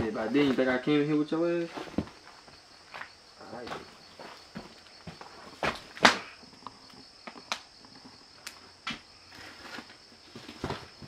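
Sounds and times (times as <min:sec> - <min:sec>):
crickets chirring: 0:00.0 - 0:11.0
footsteps on wooden floor: 0:01.9 - 0:05.8.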